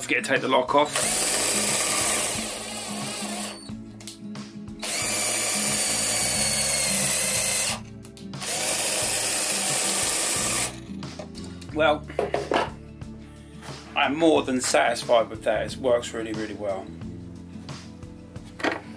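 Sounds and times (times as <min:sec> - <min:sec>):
cordless drill spinning: 0:00.9 - 0:03.8, 0:04.8 - 0:07.8, 0:08.4 - 0:10.8.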